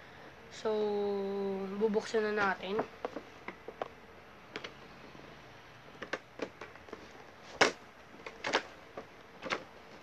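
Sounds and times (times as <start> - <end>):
packaging clicks and rustles: 5.9 - 10.0.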